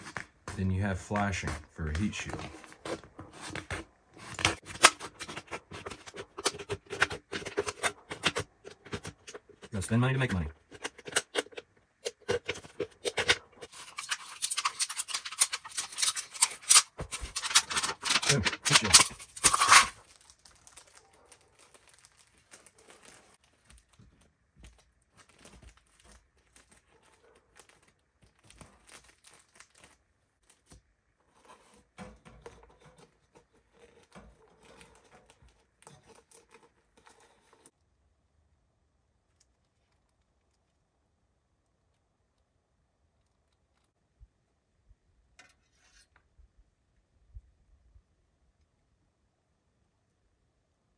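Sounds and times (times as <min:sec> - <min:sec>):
faint rustling and handling: 0:00.0 - 0:37.8
knife cutting aluminium can: 0:02.8 - 0:09.8, 0:10.6 - 0:20.0.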